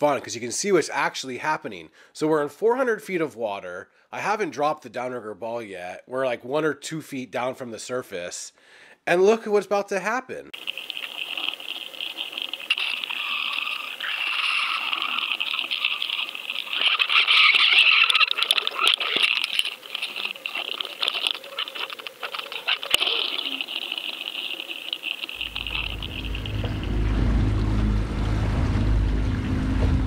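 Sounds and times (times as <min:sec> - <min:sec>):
dense crackling and clicks: 0:10.6 - 0:27.5
muffled water rushing: 0:10.6 - 0:30.0.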